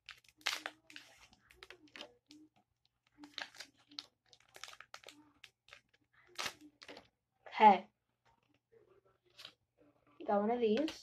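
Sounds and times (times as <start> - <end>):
foil wrapper crinkling and tearing: 0.0 - 2.4, 3.2 - 7.0.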